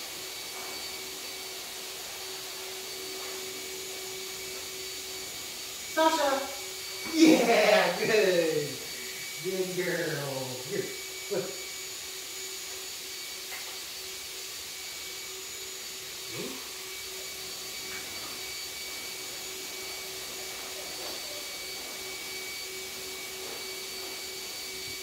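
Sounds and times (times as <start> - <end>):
electric motor whirring: 2.3 - 18.9.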